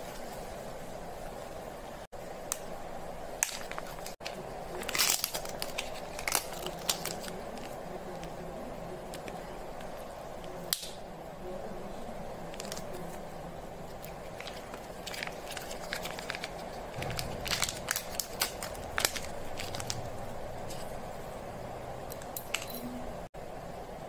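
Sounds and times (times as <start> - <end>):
steady background hum: 0.0 - 24.0
candy wrappers crinkling: 3.4 - 10.6, 12.5 - 13.3, 13.9 - 20.9.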